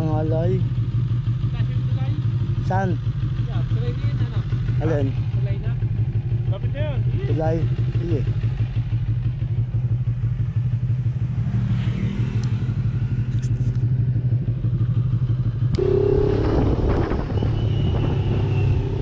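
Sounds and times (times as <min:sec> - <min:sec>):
motorcycle engine running: 0:00.0 - 0:19.0
wind and road noise: 0:07.2 - 0:19.0.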